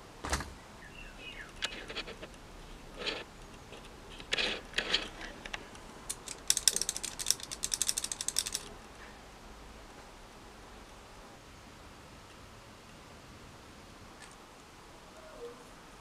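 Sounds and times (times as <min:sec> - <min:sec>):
handling rustles: 0:03.0 - 0:08.7
fast metallic clicking: 0:04.2 - 0:08.7.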